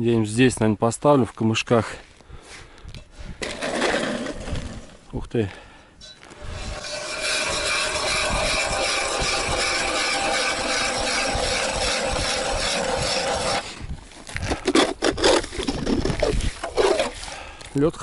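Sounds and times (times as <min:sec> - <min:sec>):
ice auger grinding: 0:03.4 - 0:04.9, 0:06.3 - 0:17.4
short knocks and scrapes: 0:03.4 - 0:05.0, 0:06.2 - 0:17.3.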